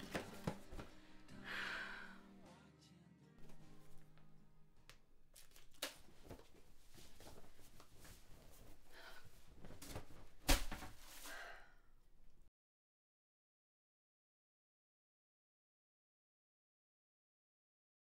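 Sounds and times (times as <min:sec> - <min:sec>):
t-shirt rustling: 0:00.0 - 0:01.1, 0:05.3 - 0:11.5.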